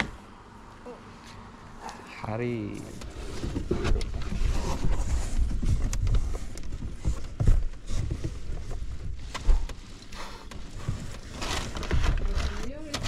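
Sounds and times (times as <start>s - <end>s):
cardboard rubbing and scraping: 2.8s - 13.0s.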